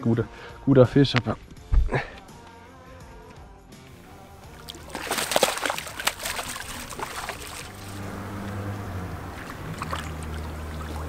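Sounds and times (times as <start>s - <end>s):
fish thrashing and splashing: 4.5s - 8.2s, 9.3s - 11.0s.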